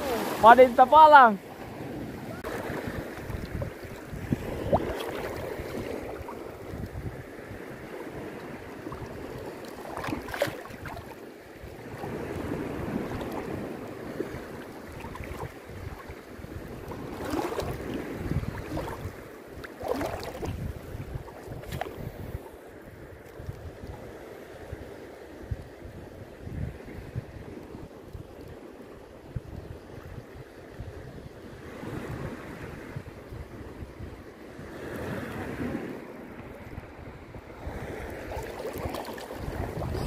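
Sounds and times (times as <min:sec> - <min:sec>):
wind buffeting microphone: 0:00.0 - 0:28.4, 0:29.2 - 0:40.0
water lapping around legs: 0:02.3 - 0:07.0, 0:07.8 - 0:22.6, 0:38.0 - 0:40.0
splashes in water: 0:04.5 - 0:06.4, 0:08.9 - 0:11.2, 0:17.0 - 0:20.7, 0:38.1 - 0:40.0.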